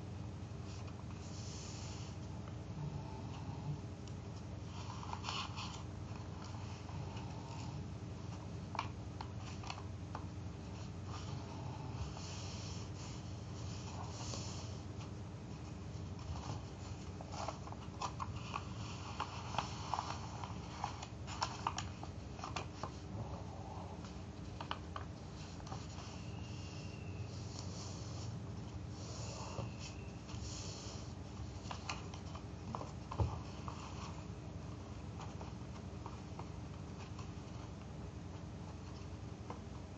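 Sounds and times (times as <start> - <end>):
low steady hum: 0.0 - 39.9
paper rustling and sliding: 4.6 - 7.7, 10.7 - 23.4
paper crinkles: 16.0 - 23.1.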